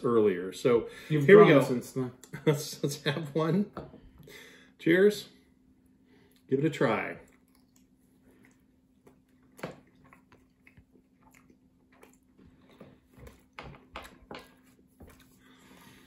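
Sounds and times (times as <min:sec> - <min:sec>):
people chewing and mouth sounds: 0:05.9 - 0:16.0.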